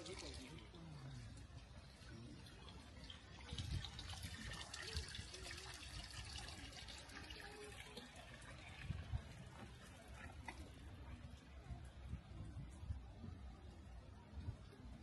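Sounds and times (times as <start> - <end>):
water trickling: 0.0 - 10.8.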